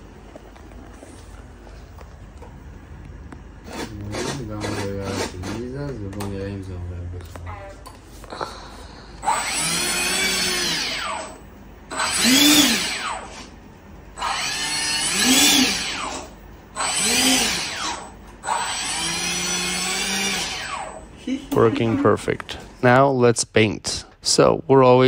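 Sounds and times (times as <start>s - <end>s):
small electric motor whirring: 3.6s - 5.7s, 9.2s - 13.5s, 14.2s - 21.0s.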